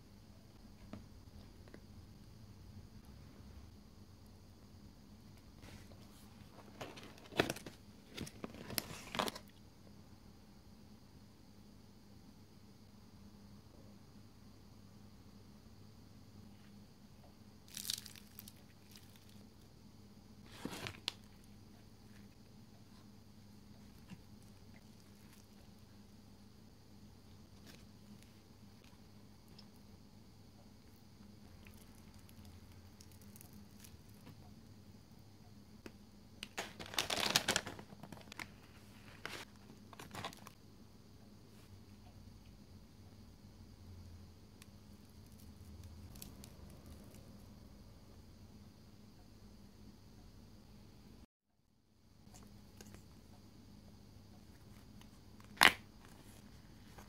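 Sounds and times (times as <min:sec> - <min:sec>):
faint steady hum: 0:00.0 - 0:57.0
paper bag crinkling and rustling: 0:06.4 - 0:09.5, 0:20.4 - 0:21.5, 0:36.4 - 0:40.6.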